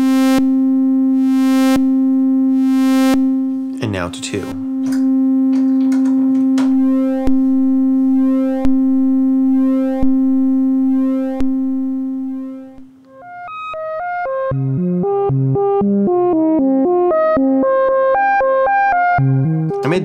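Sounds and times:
synthesizer tone: 0.0 - 15.3.

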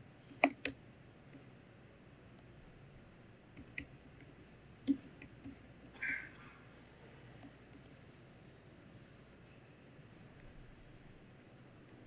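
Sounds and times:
laptop key clicks: 0.3 - 0.8.

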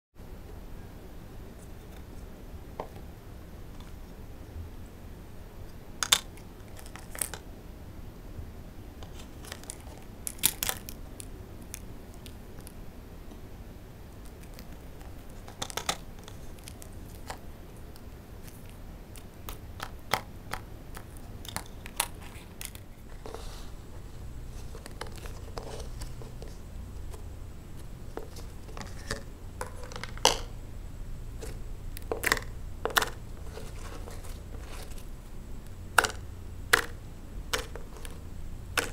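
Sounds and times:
plastic spoon stirring slime: 31.4 - 35.1.

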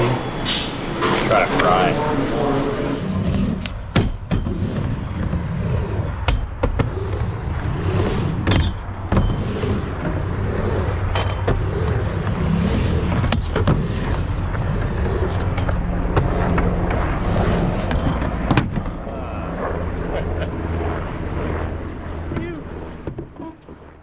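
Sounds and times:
skateboard wheels rumbling on ramp: 2.5 - 19.1.

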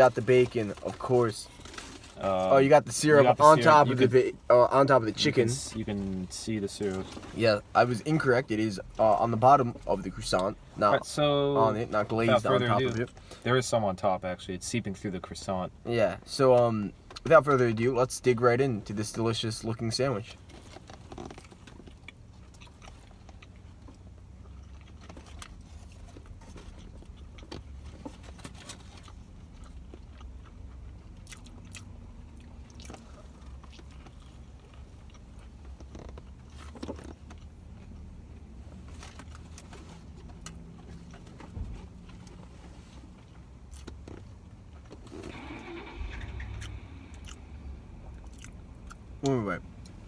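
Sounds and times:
people chewing: 21.2 - 38.1, 48.1 - 49.0.

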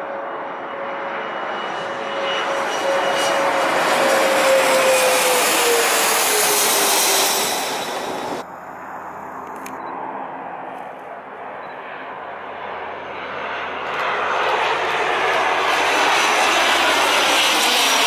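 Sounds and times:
distant aircraft engine: 0.0 - 18.0
jet aircraft passing overhead: 0.0 - 18.0.

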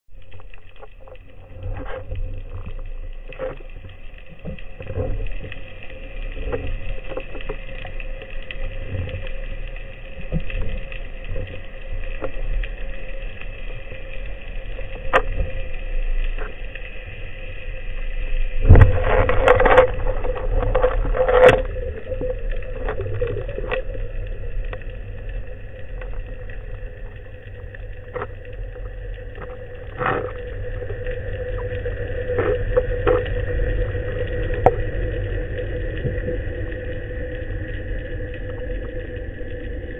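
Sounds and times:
underwater hum: 0.1 - 39.9.

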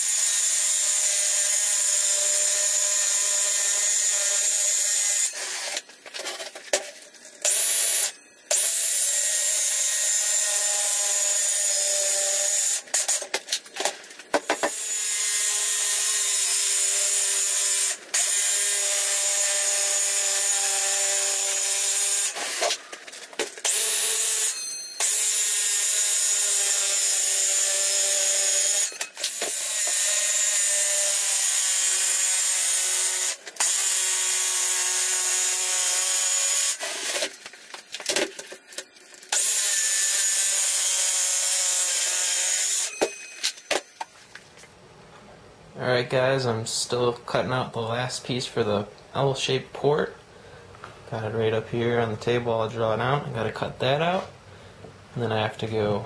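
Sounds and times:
circular saw cutting: 14.5 - 22.8, 23.6 - 37.3, 39.3 - 43.7.

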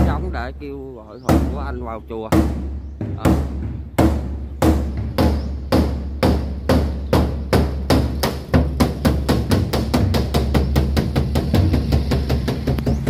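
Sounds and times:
drum beaten speeding up: 7.4 - 13.0.

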